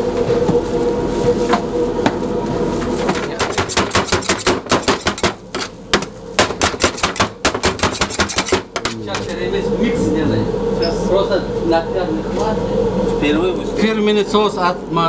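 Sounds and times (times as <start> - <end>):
low kitchen hum: 0.0 - 15.0
knife chopping on cutting board: 3.4 - 5.4, 6.0 - 9.0.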